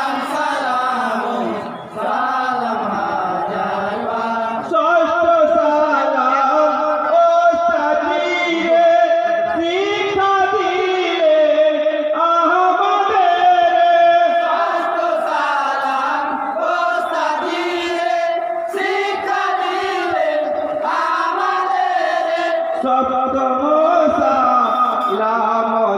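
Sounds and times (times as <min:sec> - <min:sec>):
group of men chanting: 0:00.0 - 0:25.8.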